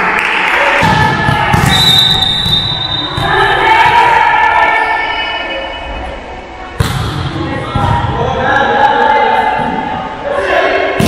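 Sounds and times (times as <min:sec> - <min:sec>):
referee's whistle blast: 0:01.6 - 0:03.2.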